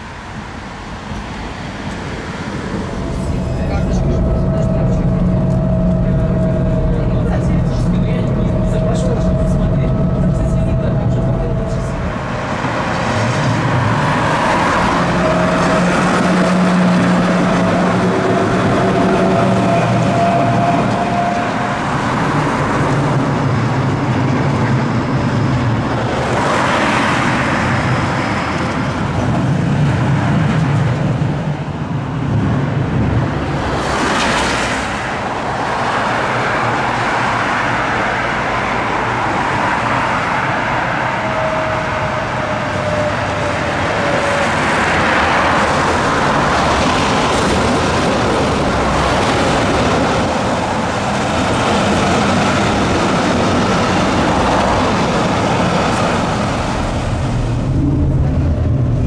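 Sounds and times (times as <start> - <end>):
trams and cars passing: 0.0 - 59.0
faint whine: 1.9 - 13.0.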